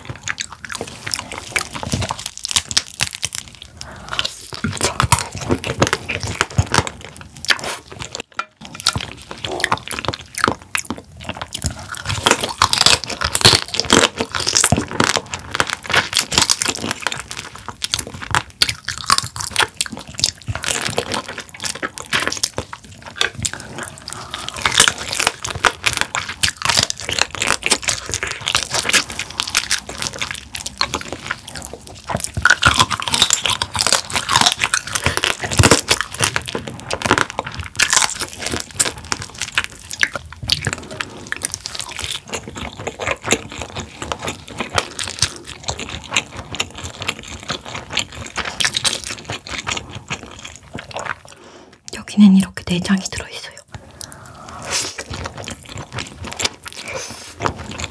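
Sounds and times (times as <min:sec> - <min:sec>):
crab shell crunching while chewing: 0:00.0 - 0:52.0, 0:53.6 - 0:57.9.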